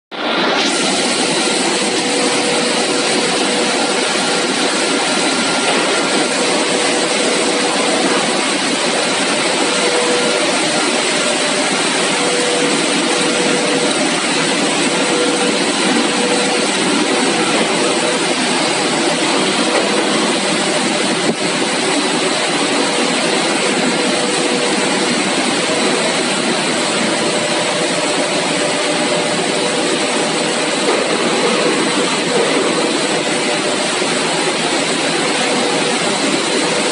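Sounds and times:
machine and air noise: 0:00.1 - 0:36.9
faint high whine: 0:00.2 - 0:36.9.

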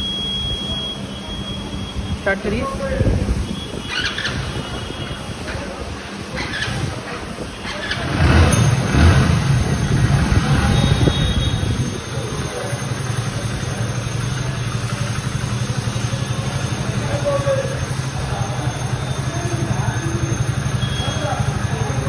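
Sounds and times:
motorcycle engine starting and idling: 0:03.8 - 0:04.8, 0:05.4 - 0:22.0.

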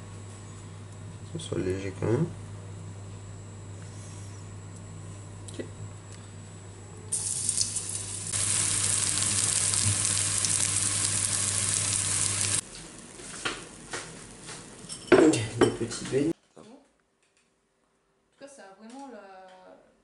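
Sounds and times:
battered food frying in hot oil: 0:07.1 - 0:15.0.

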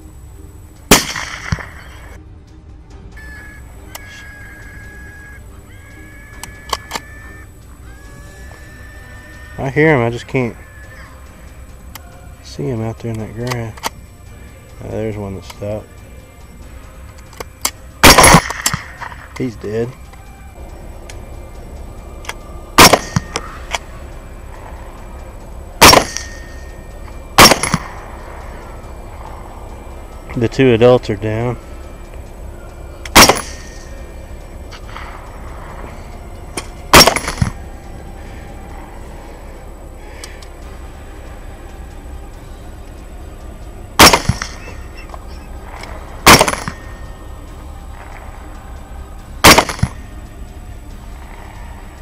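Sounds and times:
suppressed rifle shots: 0:00.9 - 0:02.0, 0:18.0 - 0:19.4, 0:22.8 - 0:23.5, 0:25.8 - 0:26.5, 0:27.4 - 0:28.0, 0:33.1 - 0:33.9, 0:36.6 - 0:37.6, 0:44.0 - 0:44.7, 0:46.2 - 0:47.0, 0:49.4 - 0:50.0.

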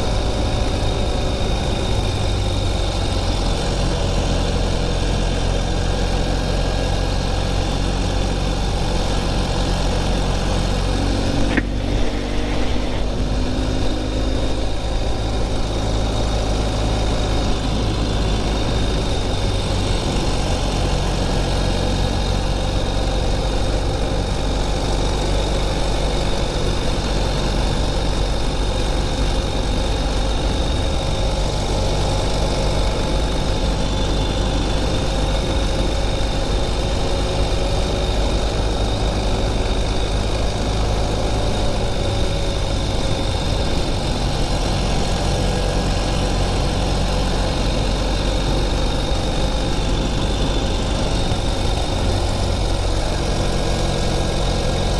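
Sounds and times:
motorcycle engine running: 0:00.0 - 0:54.9
wind and road noise: 0:00.0 - 0:54.9
brief knock: 0:11.4 - 0:11.8.

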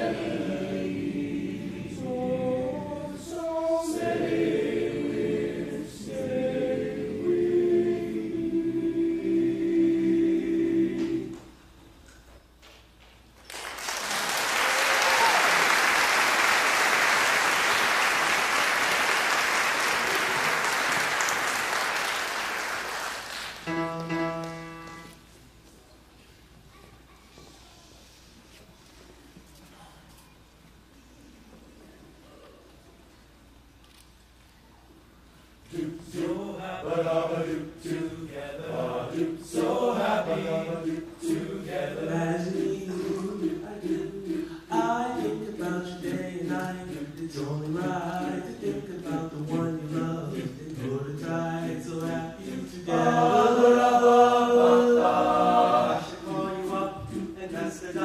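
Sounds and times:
men's choir singing in harmony: 0:00.0 - 0:11.6, 0:35.6 - 0:58.0
audience applauding: 0:13.5 - 0:24.5
short held musical notes: 0:23.6 - 0:25.3.

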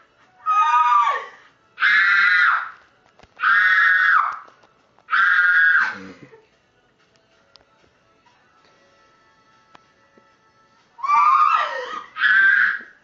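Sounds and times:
woman screaming with excitement: 0:11.0 - 0:12.9.

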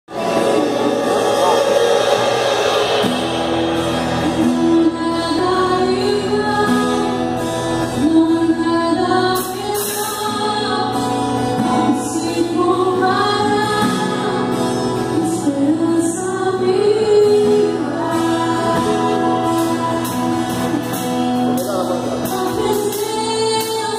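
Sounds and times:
acoustic guitar chords: 0:00.1 - 0:23.9
woman singing: 0:04.4 - 0:21.5, 0:22.1 - 0:23.9.

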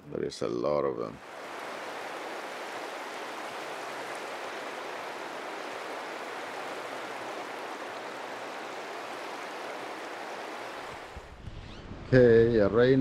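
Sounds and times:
water rushing: 0:01.2 - 0:11.4.

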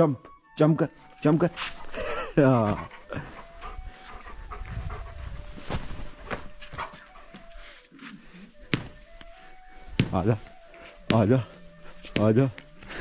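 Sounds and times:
dog panting: 0:01.5 - 0:08.6.

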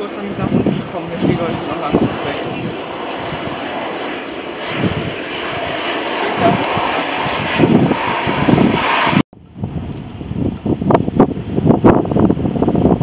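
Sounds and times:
jet engines rushing: 0:00.0 - 0:13.0
wind on microphone: 0:00.0 - 0:13.0.

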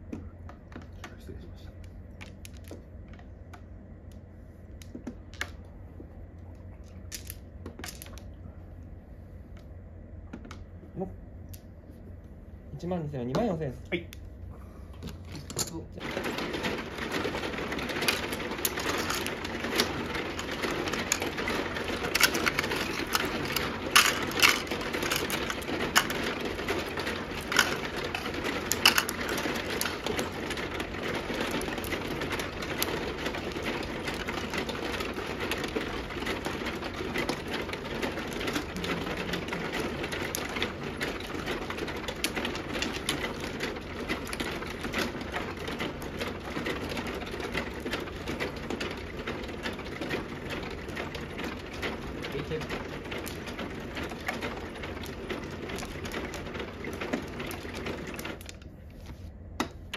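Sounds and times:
mahjong table rattling: 0:00.0 - 0:08.4, 0:15.0 - 0:59.9
mahjong tiles clacking: 0:01.8 - 0:05.6, 0:06.5 - 0:08.3, 0:15.1 - 0:58.7.

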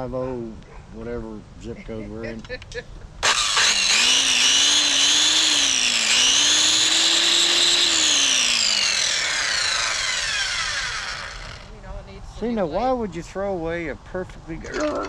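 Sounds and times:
circular saw whining: 0:03.2 - 0:11.7.

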